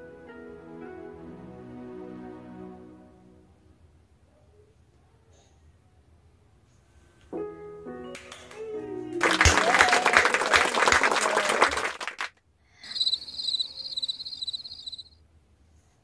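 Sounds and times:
piano notes: 0:00.0 - 0:03.9, 0:07.3 - 0:09.7
hands clapping: 0:08.1 - 0:12.4
twinkling chime: 0:12.9 - 0:15.1.

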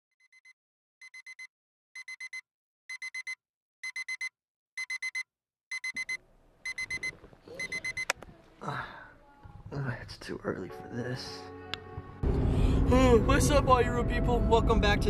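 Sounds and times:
alarm clock beeping: 0:00.2 - 0:08.1.

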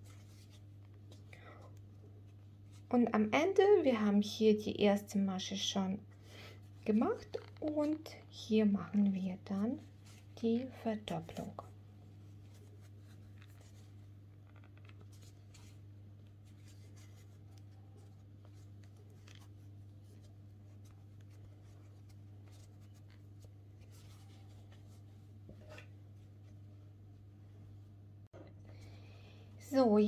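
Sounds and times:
crochet hook rustling yarn: 0:00.0 - 0:01.2, 0:06.7 - 0:26.6
steady low hum: 0:00.0 - 0:30.0.

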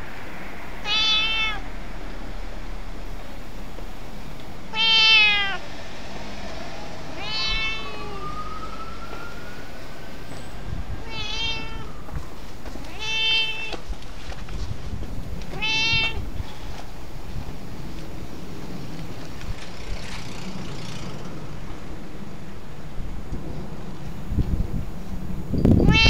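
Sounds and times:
cat meowing: 0:00.8 - 0:01.7, 0:04.7 - 0:05.6, 0:07.1 - 0:08.4, 0:11.0 - 0:13.8, 0:15.4 - 0:16.4, 0:25.8 - 0:26.0.

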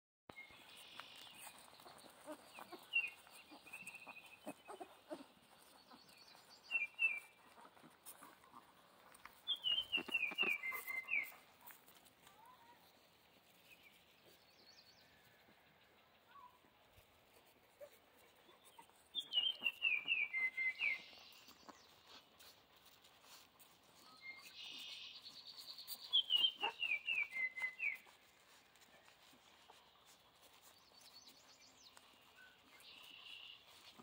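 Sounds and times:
puppies squeaking and whimpering: 0:01.4 - 0:11.7, 0:17.7 - 0:23.8, 0:26.2 - 0:30.8.

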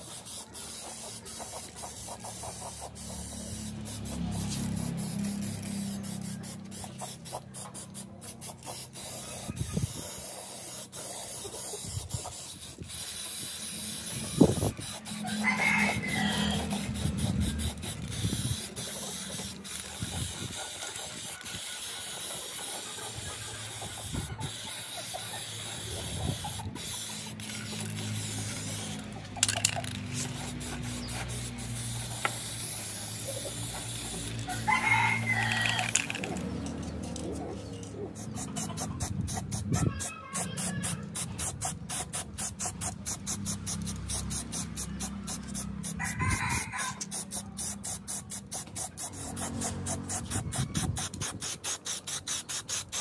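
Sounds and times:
spray paint can hissing: 0:00.0 - 0:53.0.

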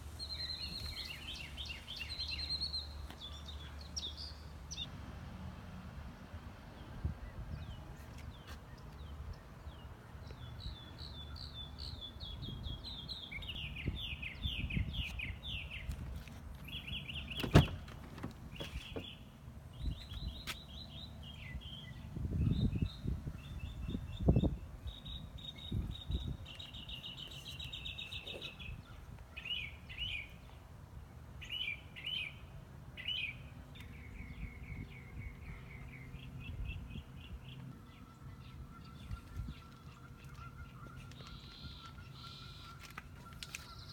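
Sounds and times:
small birds chirping: 0:00.2 - 0:04.9, 0:07.6 - 0:30.6, 0:33.0 - 0:43.9
van door click: 0:17.3 - 0:19.1
van door thumps: 0:17.3 - 0:19.2.

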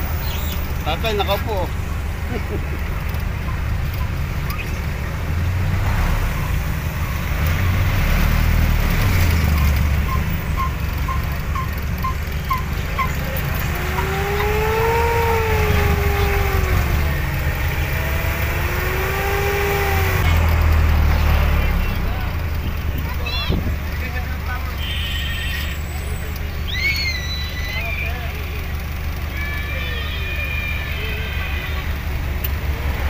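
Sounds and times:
vehicle engine and road rumble: 0:00.0 - 0:33.0
rising and falling pitched tone: 0:13.7 - 0:20.4.

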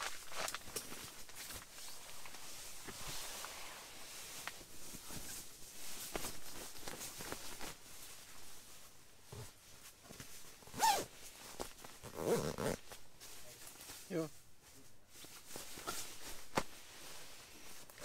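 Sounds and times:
sleeping bag rustling: 0:00.0 - 0:18.0
zipper being drawn: 0:10.7 - 0:11.1, 0:12.0 - 0:12.8.

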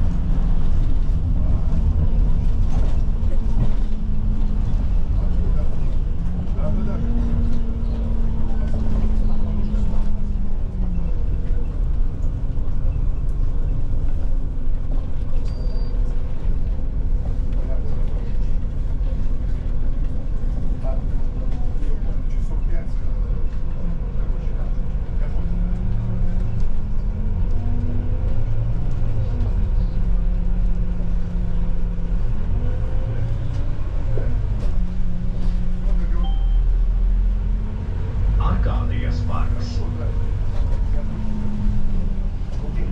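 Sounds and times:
bus drivetrain rumble: 0:00.0 - 0:42.9
road noise: 0:00.0 - 0:42.9
short high beep: 0:36.2 - 0:36.7.

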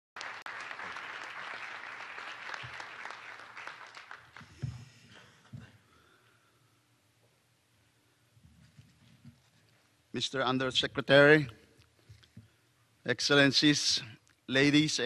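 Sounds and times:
audience applauding: 0:00.2 - 0:04.7.

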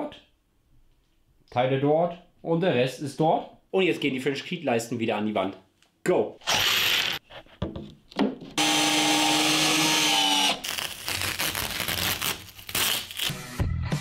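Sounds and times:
cordless drill motor whining: 0:06.4 - 0:07.2, 0:08.6 - 0:10.6.

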